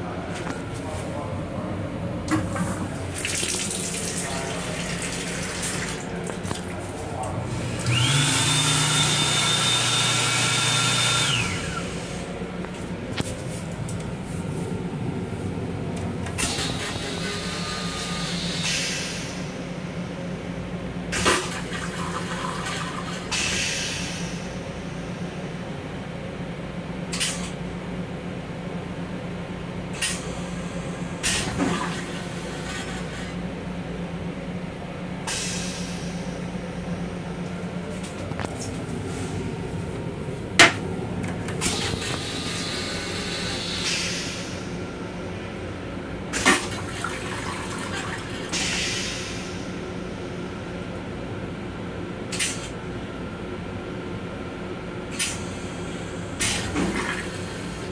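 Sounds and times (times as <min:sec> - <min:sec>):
steady low hum: 0:00.0 - 0:08.0, 0:32.1 - 0:56.4.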